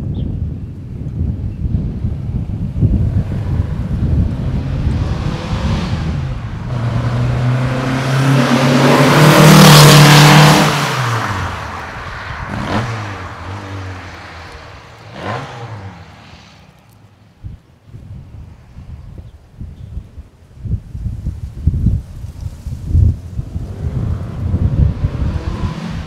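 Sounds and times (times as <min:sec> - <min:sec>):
car accelerating past: 0:03.0 - 0:16.8, 0:23.4 - 0:26.0.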